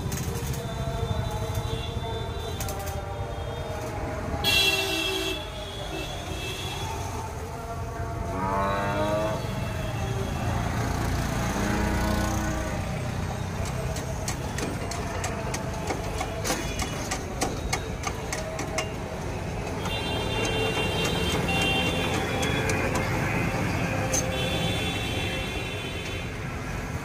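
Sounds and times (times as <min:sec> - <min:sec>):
low rumble of street noise: 0:00.0 - 0:27.0
hand tools clicking on metal: 0:13.6 - 0:23.2.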